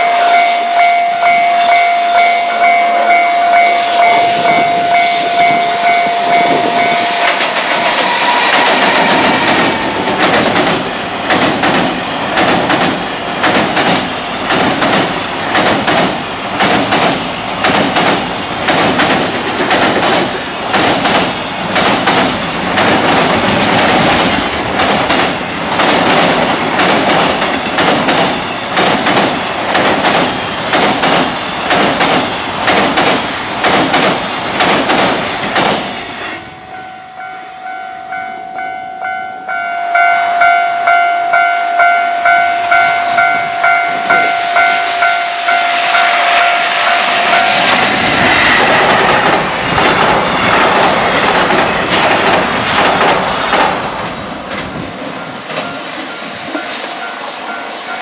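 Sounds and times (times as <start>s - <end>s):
steady high tone: 0.0s - 11.3s, 36.0s - 49.8s
train wheels clattering over rail joints: 6.7s - 36.1s, 47.6s - 56.9s.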